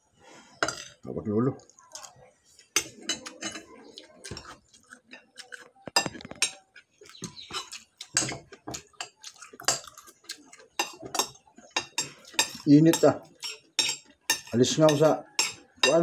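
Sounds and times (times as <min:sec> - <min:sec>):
spoons clinking on plates: 0:00.6 - 0:01.0, 0:02.7 - 0:03.7, 0:04.3 - 0:10.0, 0:10.7 - 0:16.0.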